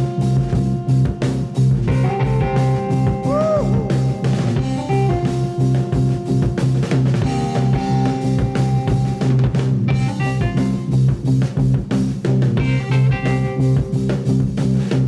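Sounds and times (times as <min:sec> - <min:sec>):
hard rock band playing: 0:00.0 - 0:15.0
bent electric guitar note: 0:01.8 - 0:06.6.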